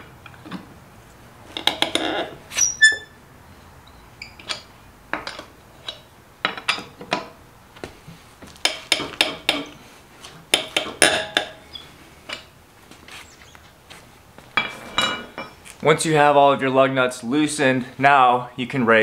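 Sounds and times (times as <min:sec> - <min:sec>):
tire iron clinking on lug nuts: 0:01.5 - 0:03.2, 0:03.8 - 0:07.4, 0:08.5 - 0:09.8, 0:10.5 - 0:12.5, 0:14.5 - 0:15.8.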